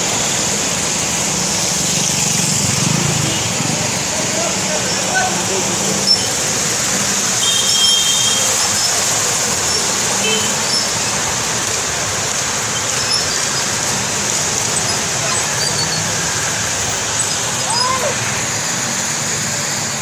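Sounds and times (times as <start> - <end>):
traffic splashing through water: 0.0 - 20.0.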